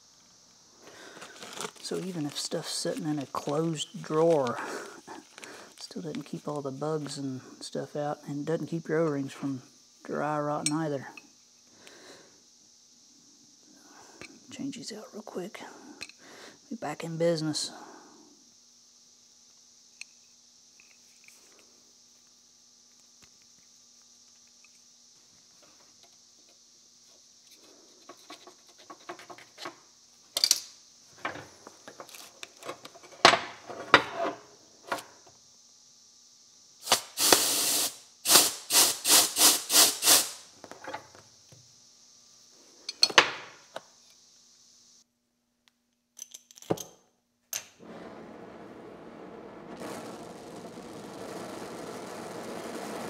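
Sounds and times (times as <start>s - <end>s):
torch flame hissing: 0.0s - 7.6s, 36.8s - 40.6s, 47.8s - 53.0s
cicadas droning: 0.0s - 46.1s, 47.0s - 53.0s.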